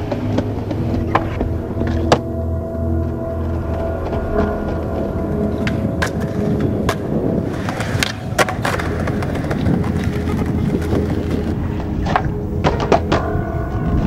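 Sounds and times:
skateboard clacks: 0.0 - 2.3, 5.6 - 13.4
skateboard wheels rolling: 0.0 - 14.0.

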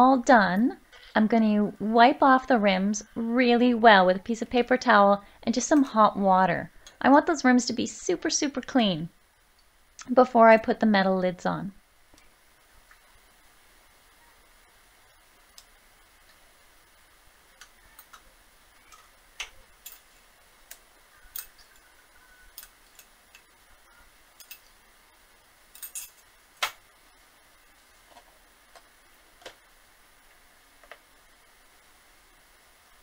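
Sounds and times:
metal spoon clinking on jars: 25.8 - 26.2.

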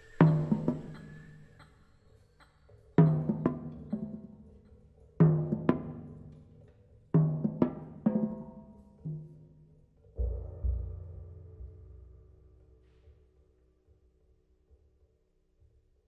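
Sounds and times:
drum toms struck by hand: 3.0 - 4.4, 5.2 - 6.6, 7.2 - 12.6.

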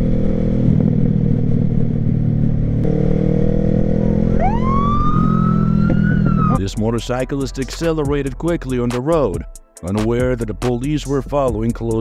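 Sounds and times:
police siren wailing: 4.0 - 6.6.

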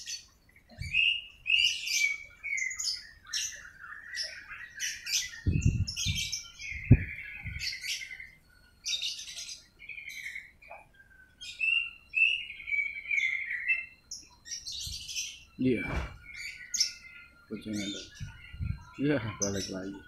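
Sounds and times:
small birds chirping: 0.0 - 20.0
low thumps: 15.8 - 16.3.

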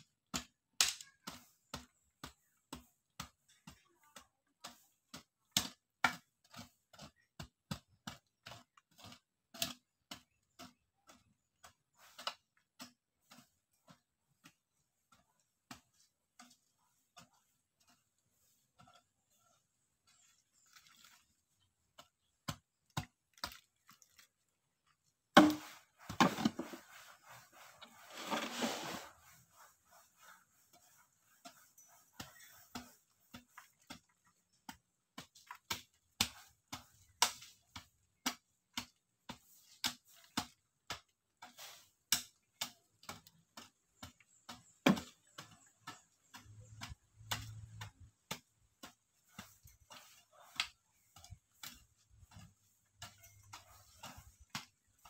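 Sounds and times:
hoe chopping into soil: 25.3 - 26.9.

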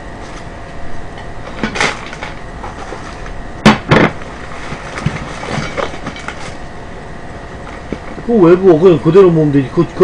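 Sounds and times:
cardboard and paper rustling: 1.5 - 3.3, 4.4 - 6.6.

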